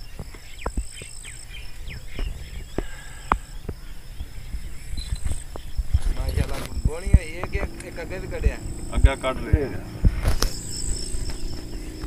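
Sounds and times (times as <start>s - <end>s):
bird chirps: 0.0s - 12.0s
insect trilling: 0.0s - 12.0s
low rumble: 3.8s - 12.0s.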